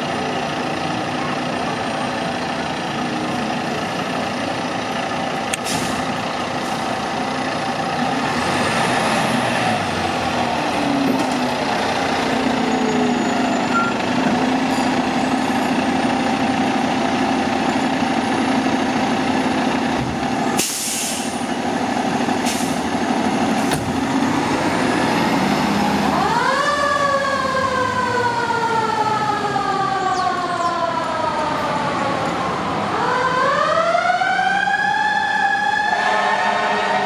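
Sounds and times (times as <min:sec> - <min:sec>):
diesel engine idling: 0:00.0 - 0:33.0
short air hisses: 0:05.6 - 0:06.0, 0:20.6 - 0:21.4
mechanical siren wailing: 0:26.0 - 0:37.0.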